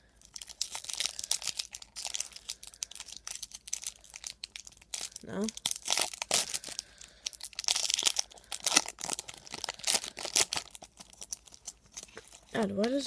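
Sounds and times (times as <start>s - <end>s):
plastic wrapper crinkling: 0.1s - 13.0s.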